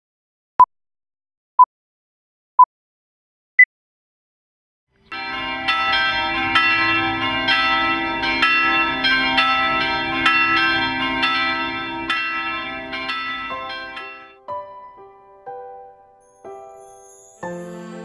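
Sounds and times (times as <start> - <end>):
church bells pealing: 5.1 - 14.4, 17.2 - 18.0.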